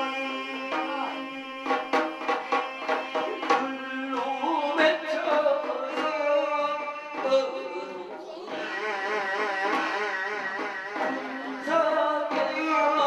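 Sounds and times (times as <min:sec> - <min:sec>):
drum strokes: 0:00.0 - 0:13.0.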